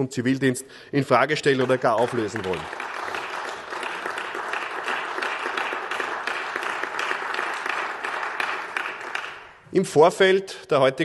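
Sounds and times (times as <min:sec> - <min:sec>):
crowd clapping: 0:01.2 - 0:09.7.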